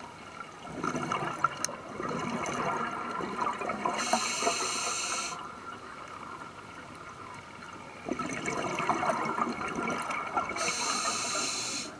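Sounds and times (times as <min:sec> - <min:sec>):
exhaled bubbles underwater: 0:00.0 - 0:11.9
regulator inhalation hiss: 0:04.0 - 0:05.4, 0:10.6 - 0:11.9.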